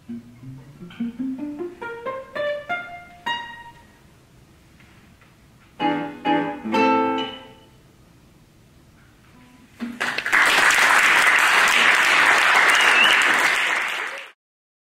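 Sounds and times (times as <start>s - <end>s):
audience applauding: 9.9s - 14.4s.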